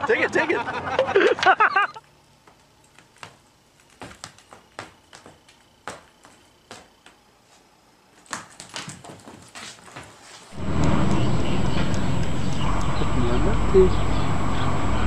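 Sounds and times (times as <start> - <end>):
voices: 0.0 - 2.0, 10.6 - 15.0
dog steps on hardwood floor: 2.4 - 7.2, 8.2 - 10.5.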